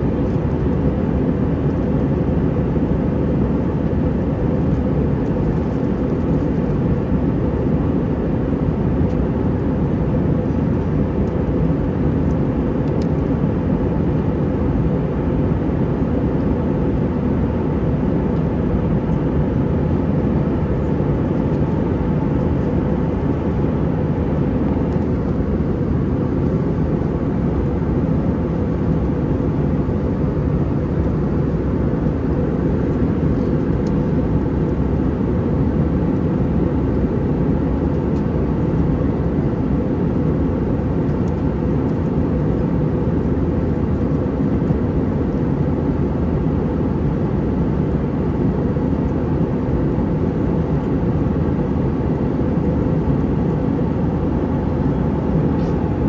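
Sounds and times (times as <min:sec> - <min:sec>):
airflow around aircraft cabin: 0:00.0 - 0:56.0
jet engines running: 0:00.0 - 0:56.0.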